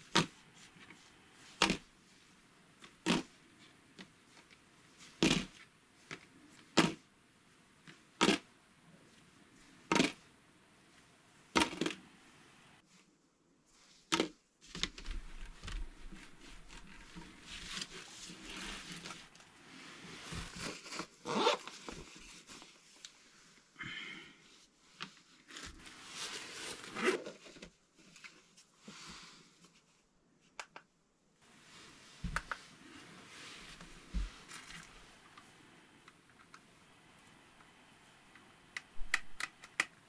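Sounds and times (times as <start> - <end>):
plastic bags rustling: 14.7 - 23.0.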